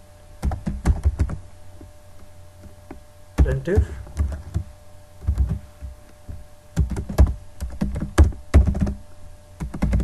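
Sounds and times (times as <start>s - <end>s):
computer keyboard typing: 0.4s - 1.4s, 3.4s - 5.6s, 6.8s - 9.0s, 9.6s - 10.0s.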